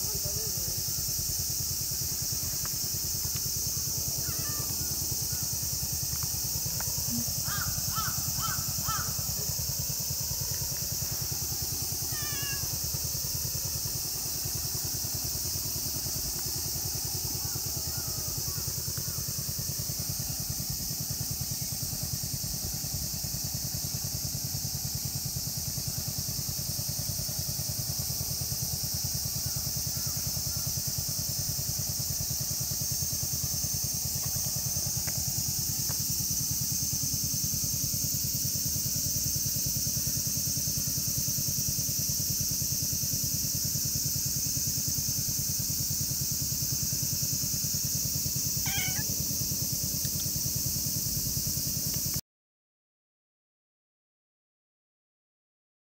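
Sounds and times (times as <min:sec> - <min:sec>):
cicadas chorus: 0:00.0 - 0:52.2
short pitched call: 0:48.6 - 0:49.1.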